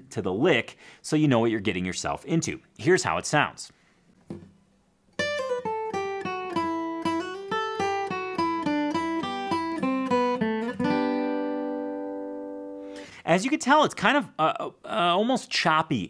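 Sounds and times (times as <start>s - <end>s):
guitar chord ringing: 5.2s - 13.0s
acoustic guitar lick: 5.2s - 13.2s.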